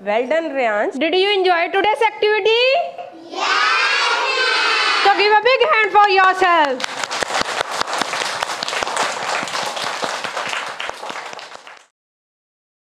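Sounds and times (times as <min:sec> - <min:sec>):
children clapping: 0:06.6 - 0:11.9.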